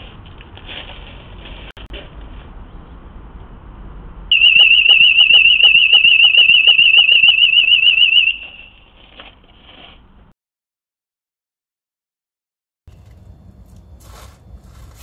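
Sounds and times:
siren rapid high-pitched warble: 0:04.3 - 0:08.8.

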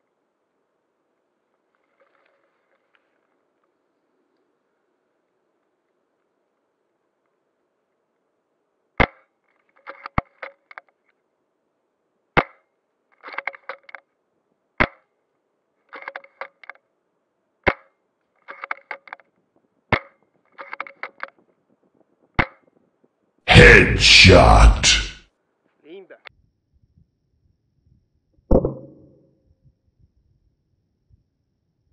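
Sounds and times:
small mechanical clicks: 0:15.9 - 0:16.8, 0:18.4 - 0:19.2.

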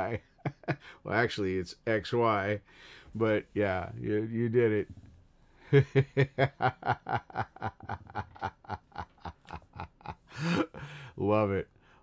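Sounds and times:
man laughing heartily: 0:00.0 - 0:00.9, 0:05.6 - 0:11.1.

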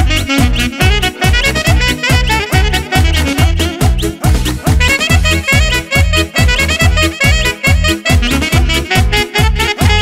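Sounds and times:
fast drum beat: 0:00.0 - 0:07.0
melodic lead line: 0:00.0 - 0:09.1.

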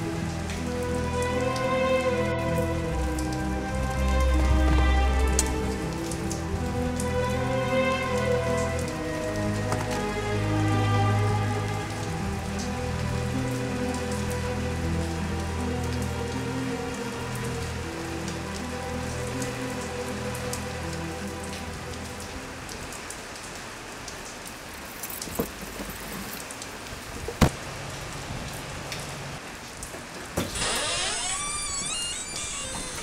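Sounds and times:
low sustained music notes: 0:00.0 - 0:23.1
rain falling on pavement: 0:00.0 - 0:33.0
gliding tones: 0:30.6 - 0:33.0.

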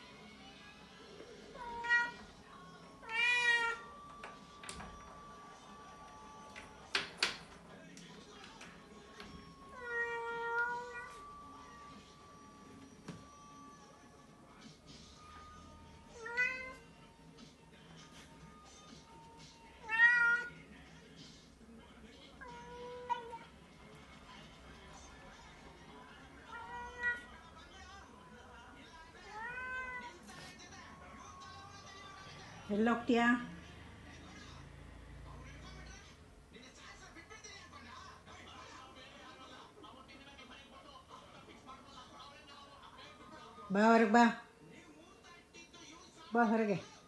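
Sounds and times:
cat meowing: 0:01.5 - 0:02.3, 0:03.0 - 0:03.9, 0:09.7 - 0:11.2, 0:16.1 - 0:16.9, 0:19.8 - 0:20.6, 0:22.4 - 0:23.5, 0:26.5 - 0:27.4, 0:29.2 - 0:30.2.

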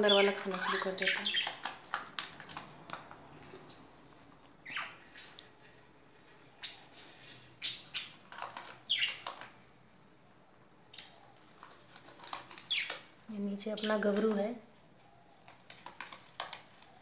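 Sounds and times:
budgerigars chirping: 0:00.0 - 0:01.7, 0:04.6 - 0:05.0, 0:07.6 - 0:08.2, 0:08.9 - 0:09.3, 0:12.6 - 0:13.0.

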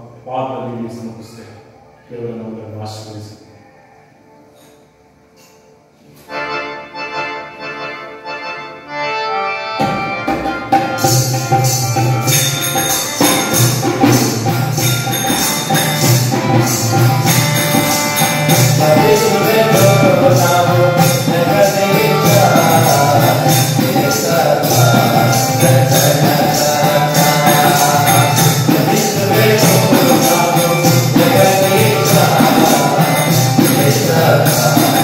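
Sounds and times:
electronic keyboard melody: 0:05.9 - 0:35.0
jingling tambourine: 0:09.8 - 0:35.0
tabla: 0:09.8 - 0:35.0.

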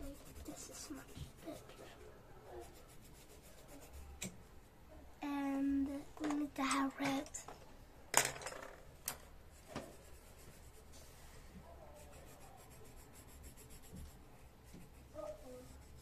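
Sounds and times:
pencil scratching on paper: 0:00.0 - 0:04.2, 0:09.5 - 0:11.2, 0:11.8 - 0:16.0.

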